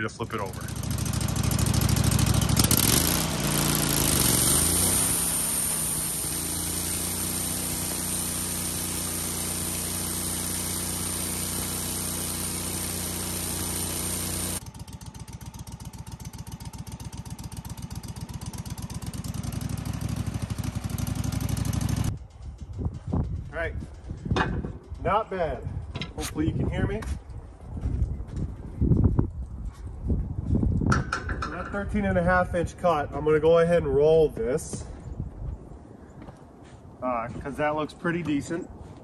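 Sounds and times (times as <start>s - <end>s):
gasoline engine running: 0.1s - 25.1s
band saw cutting log: 0.5s - 14.6s.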